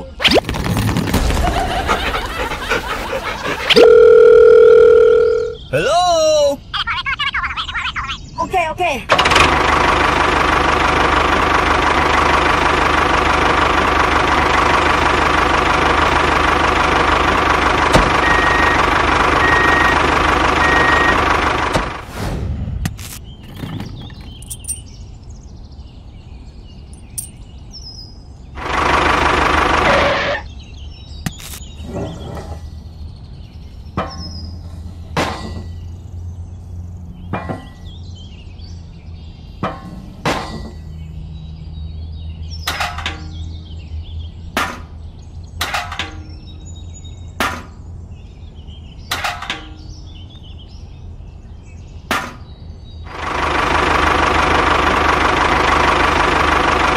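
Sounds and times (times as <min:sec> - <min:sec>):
clicks and knocks of parts handled: 0:22.9 - 0:24.9, 0:27.0 - 0:27.4.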